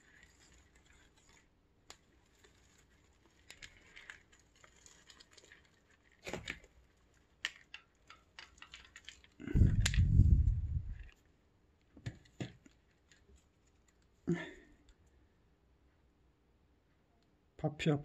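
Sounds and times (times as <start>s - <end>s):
moss and leaves rustling: 0.0s - 11.3s
low rumbling handling noise: 9.4s - 11.2s.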